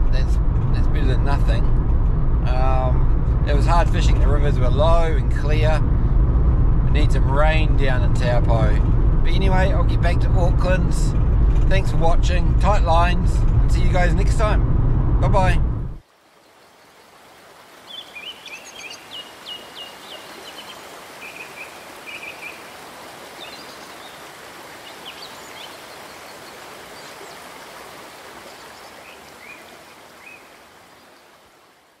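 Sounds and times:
rushing water: 0:16.0 - 0:32.0
birds chirping and trilling: 0:17.8 - 0:27.6, 0:28.2 - 0:31.4.

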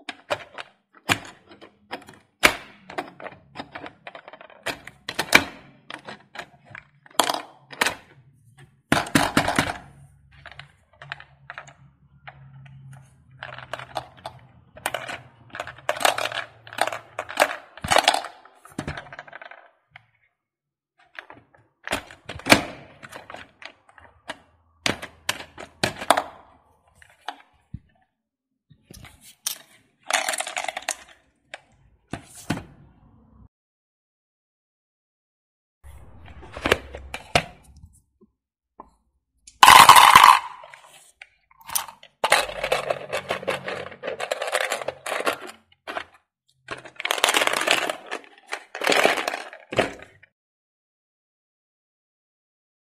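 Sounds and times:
plastic balls clattering: 0:00.0 - 0:20.1, 0:21.1 - 0:27.8, 0:29.0 - 0:31.8, 0:39.5 - 0:50.2.

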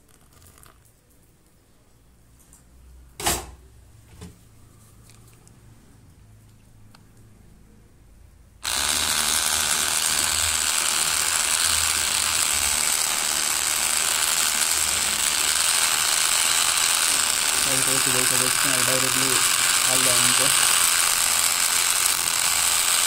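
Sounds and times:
milk frother whirring: 0:08.6 - 0:23.0.

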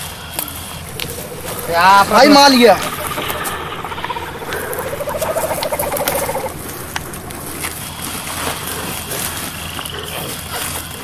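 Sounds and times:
fast-pulsing pitched call: 0:00.8 - 0:08.2.

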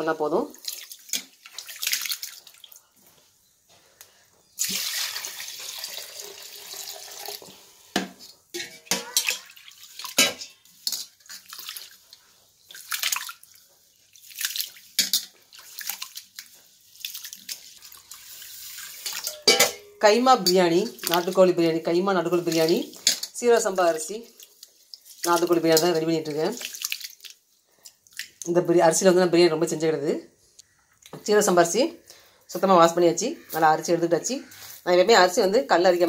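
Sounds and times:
water pouring: 0:00.5 - 0:02.8, 0:04.6 - 0:07.8, 0:09.1 - 0:19.5, 0:24.0 - 0:27.4
water sloshing and splashing: 0:00.5 - 0:02.8, 0:08.6 - 0:19.5, 0:20.9 - 0:21.6, 0:22.3 - 0:28.5.

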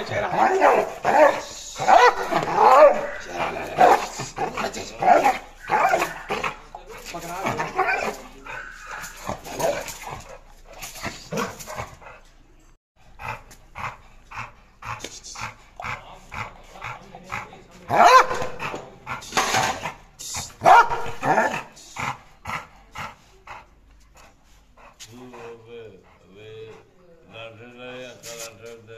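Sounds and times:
dog barking: 0:00.0 - 0:06.6, 0:07.5 - 0:09.9, 0:17.9 - 0:18.8, 0:20.6 - 0:21.7.

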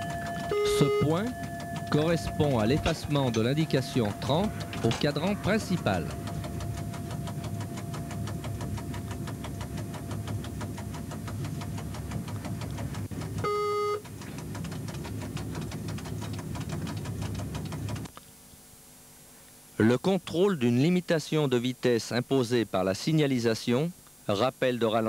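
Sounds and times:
rapid even clicking: 0:00.0 - 0:18.1
train running noise: 0:00.0 - 0:18.1
short loud beep: 0:00.5 - 0:03.0.

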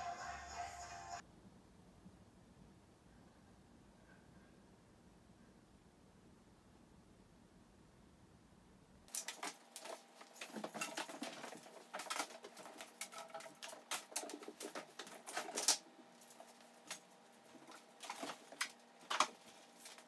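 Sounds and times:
cats scampering on wooden floor: 0:09.1 - 0:20.0.

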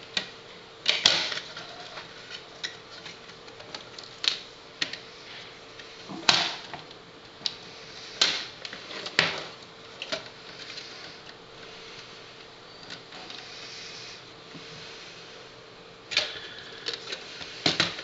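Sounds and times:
faint steady hum: 0:00.0 - 0:18.0
disc drive clicks and knocks: 0:17.6 - 0:18.0.

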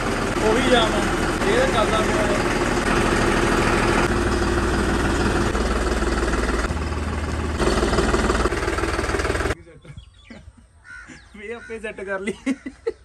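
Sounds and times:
tractor diesel engine running: 0:00.0 - 0:09.6.

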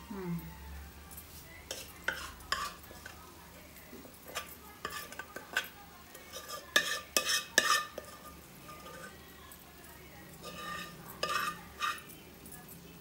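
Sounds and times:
metal bowl and pot clinking: 0:01.0 - 0:03.2, 0:04.1 - 0:13.0
spoon scraping a bowl: 0:01.3 - 0:03.2, 0:04.2 - 0:09.3, 0:10.3 - 0:12.2.

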